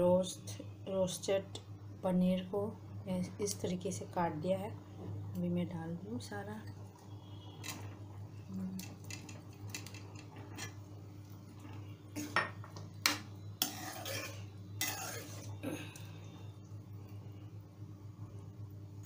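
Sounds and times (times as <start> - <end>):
steady low hum: 0.0 - 19.0
spatula scraping pan: 13.6 - 15.6.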